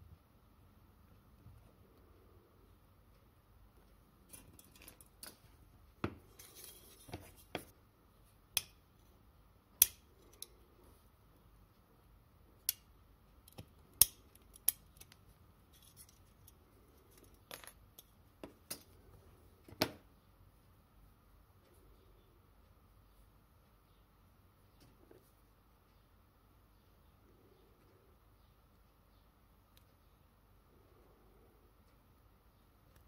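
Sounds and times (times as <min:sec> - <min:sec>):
metal scrape: 0:06.3 - 0:07.5
sharp metal clicks: 0:09.7 - 0:10.6, 0:12.6 - 0:15.2.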